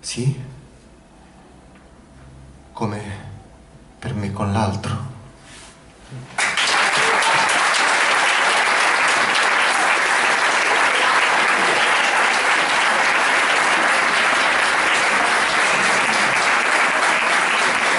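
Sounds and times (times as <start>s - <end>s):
audience applauding: 6.4s - 17.9s.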